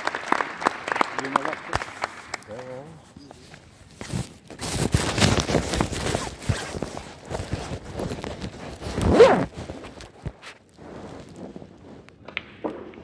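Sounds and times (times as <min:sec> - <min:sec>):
rustling handling noise: 0:03.1 - 0:12.1.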